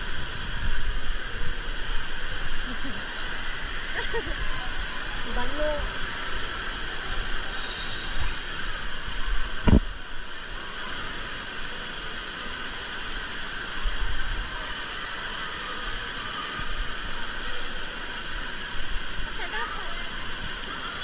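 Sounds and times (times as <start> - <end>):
running water: 0.0 - 21.0
dull low thump: 9.6 - 9.9.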